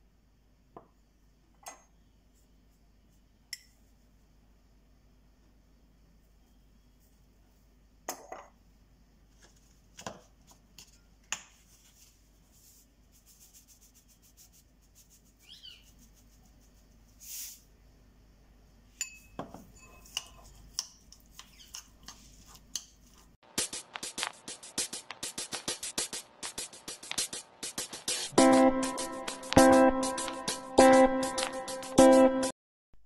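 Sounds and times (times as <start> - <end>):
spoon scraping ceramic bowl: 19.0 - 22.6
seasoning shaker taps: 23.6 - 28.1.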